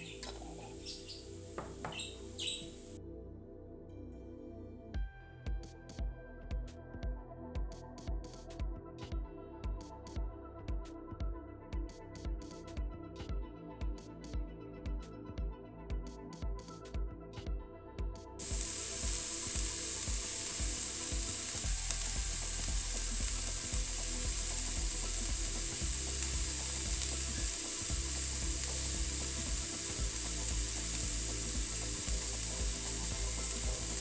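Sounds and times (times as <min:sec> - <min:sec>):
food sizzling in frying pan: 0:00.0 - 0:03.0, 0:18.4 - 0:34.0
soft background music: 0:00.0 - 0:34.0.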